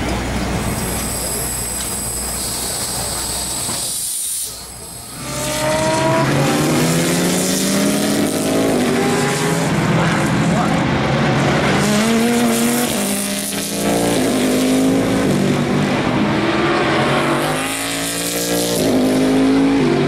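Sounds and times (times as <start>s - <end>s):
mechanical noise with whine: 0.0s - 9.0s
race cars passing: 4.8s - 20.0s.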